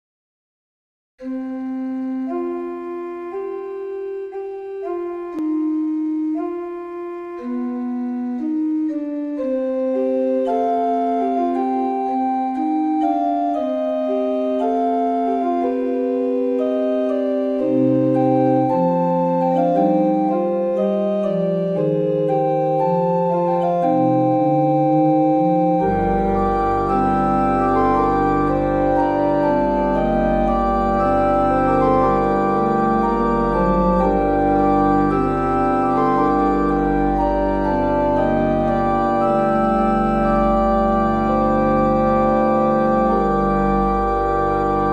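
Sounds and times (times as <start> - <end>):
keyboard melody: 1.2 - 44.9.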